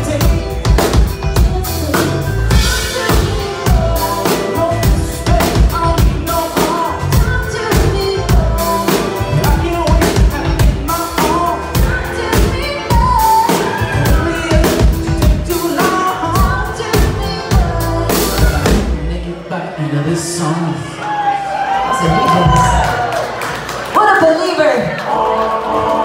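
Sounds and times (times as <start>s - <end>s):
drum kit: 0.0s - 19.3s
person singing: 0.0s - 19.6s
live rock band playing: 0.0s - 20.8s.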